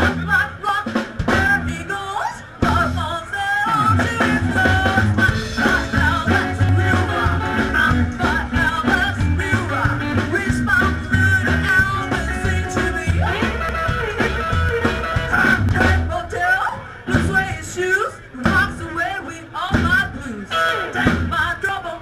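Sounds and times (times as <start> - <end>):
upright double bass: 0.0 - 0.4, 2.6 - 16.2
drum kit: 0.0 - 16.4, 17.1 - 17.8, 18.4 - 19.1, 19.7 - 20.2, 21.0 - 21.6.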